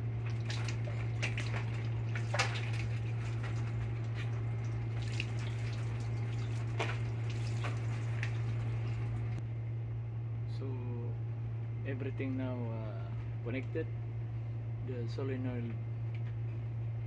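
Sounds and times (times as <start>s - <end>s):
water splashing and dripping: 0.0s - 9.4s
low machinery hum: 0.0s - 17.0s.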